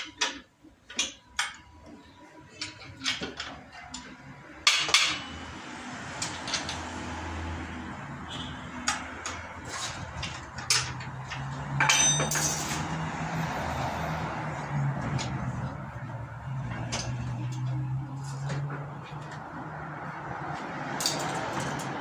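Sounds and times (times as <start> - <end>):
metallic clinks and knocks: 8.8 - 13.0, 20.9 - 22.0
ringing metal clatter: 11.8 - 12.8.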